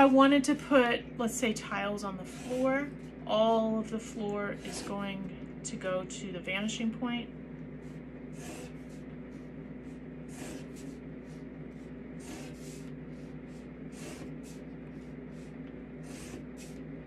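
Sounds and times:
steady low hum: 0:00.0 - 0:17.0
pencil scratching along ruler: 0:02.2 - 0:03.1, 0:04.0 - 0:05.2, 0:07.9 - 0:16.8.

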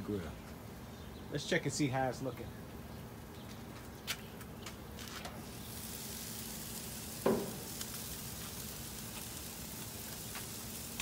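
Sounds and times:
chicken sizzling on a grill: 0:05.1 - 0:11.0
grill lid thump: 0:07.2 - 0:07.8.

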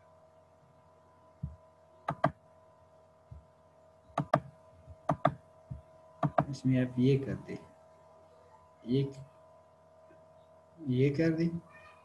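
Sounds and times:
faint electrical hum: 0:00.0 - 0:12.0
computer mouse clicking: 0:02.1 - 0:02.4, 0:04.1 - 0:04.5, 0:05.1 - 0:05.4, 0:06.2 - 0:06.5.

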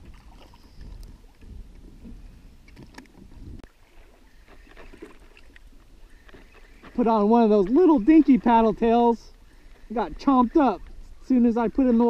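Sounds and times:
wind rumble on microphone: 0:00.0 - 0:03.7.

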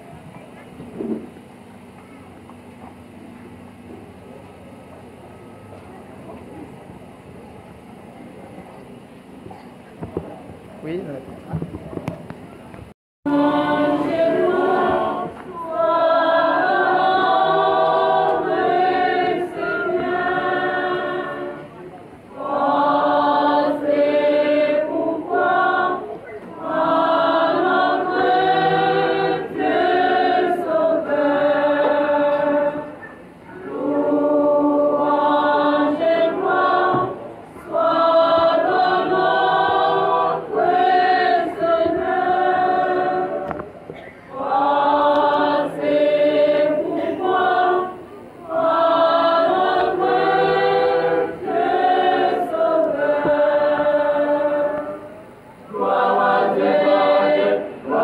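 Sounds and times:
church choir singing: 0:13.3 - 0:43.7, 0:44.3 - 0:58.0.

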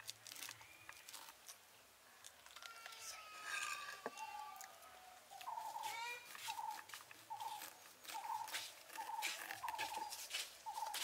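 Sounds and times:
knife scraping corn cob: 0:05.7 - 0:11.0.

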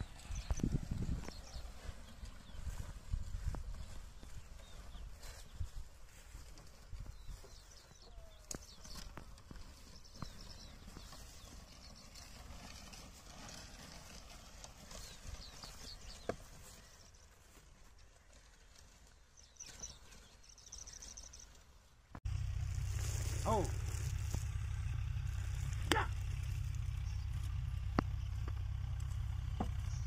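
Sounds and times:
hoof footfalls and scuffs: 0:00.0 - 0:21.5
low steady rumble: 0:22.3 - 0:30.0.

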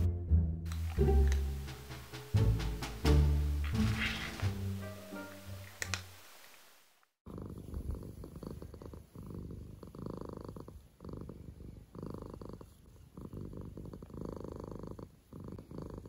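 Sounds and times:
cat purring: 0:07.2 - 0:16.0.

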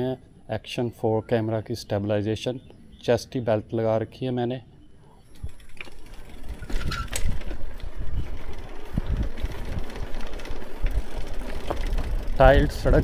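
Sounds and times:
bike rattling and knocking: 0:05.4 - 0:13.0
bike tyres rumbling on tiles: 0:05.5 - 0:13.0.

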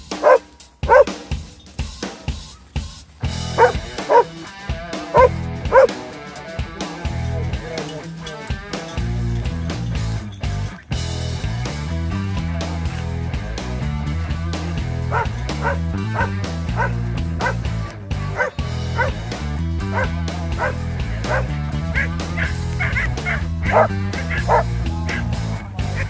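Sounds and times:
background music: 0:00.0 - 0:26.0
dog barking: 0:00.1 - 0:01.2, 0:03.6 - 0:04.4, 0:05.1 - 0:06.0, 0:15.1 - 0:17.6, 0:18.3 - 0:19.2, 0:19.9 - 0:25.2.

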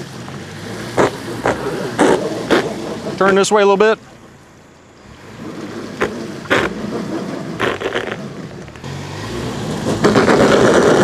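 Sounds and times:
engine revving under load: 0:00.0 - 0:03.8, 0:05.0 - 0:11.0
sharp clacks: 0:06.0 - 0:06.8, 0:07.6 - 0:08.9.

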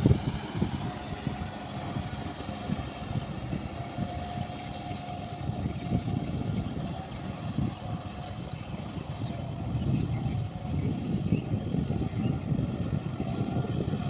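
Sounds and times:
tractor diesel engine running: 0:00.0 - 0:14.0.

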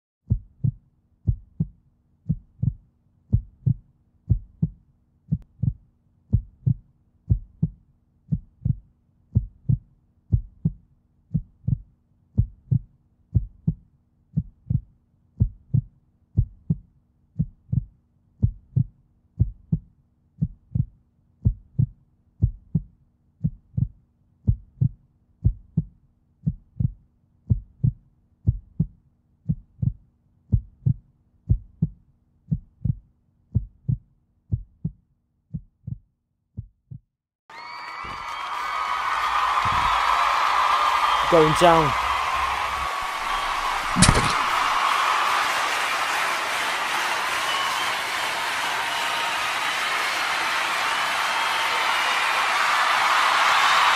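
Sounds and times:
heartbeat double thumps: 0:00.3 - 0:13.8, 0:14.4 - 0:37.0.

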